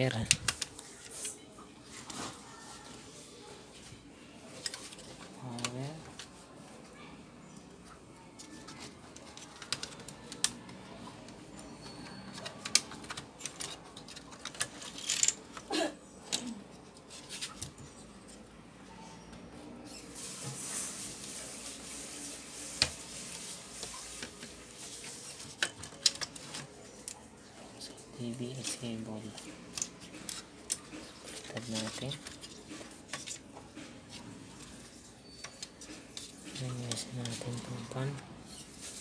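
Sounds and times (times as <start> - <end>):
plastic parts clicking and knocking: 8.4 - 15.7, 25.4 - 27.2.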